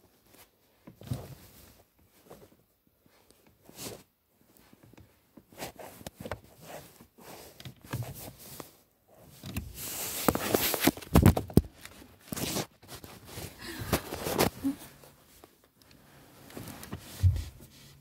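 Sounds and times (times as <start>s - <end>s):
fabric rustling: 0.1s - 18.0s
socked feet pressing car pedals: 16.6s - 17.8s.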